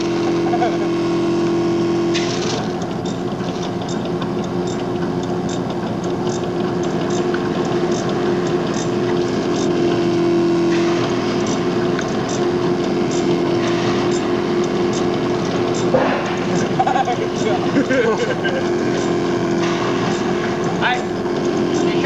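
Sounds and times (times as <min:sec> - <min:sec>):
insulation blowing machine drone: 0:00.0 - 0:22.0
light regular ticking: 0:01.4 - 0:09.8, 0:14.0 - 0:22.0.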